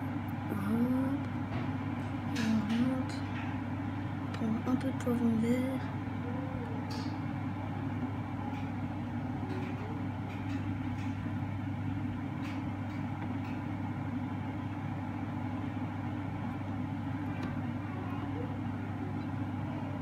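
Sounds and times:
kitchen appliance humming: 0.0s - 20.0s.

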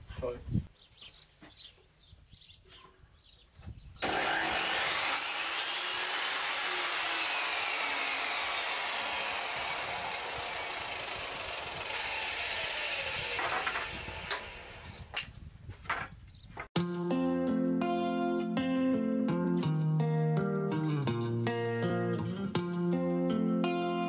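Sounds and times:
power saw cutting wood: 4.0s - 15.2s.

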